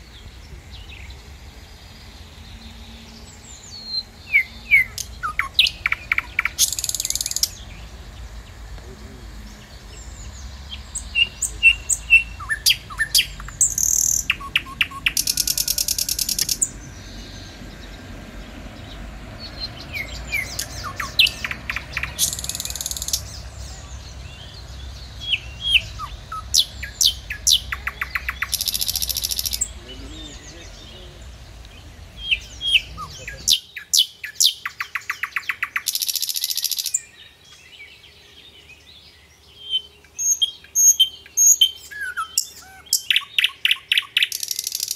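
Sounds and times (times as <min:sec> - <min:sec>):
bird trill: 0:00.0 - 0:08.6, 0:09.4 - 0:18.1, 0:18.8 - 0:44.9
songbirds chirping and whistling: 0:00.0 - 0:44.9.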